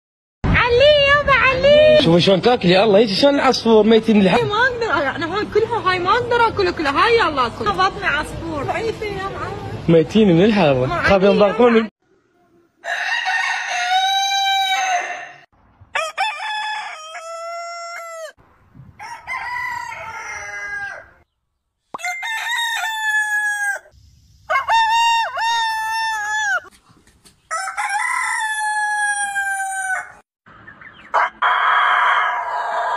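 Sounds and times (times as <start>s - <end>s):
roosters crowing: 12.8s - 18.4s, 19.0s - 21.3s, 21.9s - 26.7s, 27.5s - 32.9s.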